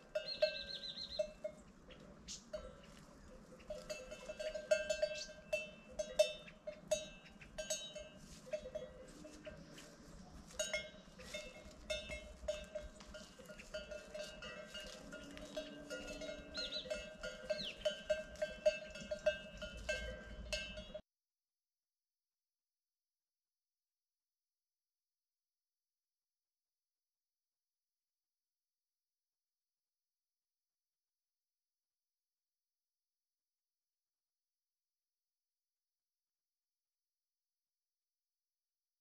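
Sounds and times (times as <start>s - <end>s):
cowbell clanking: 0.0s - 21.0s.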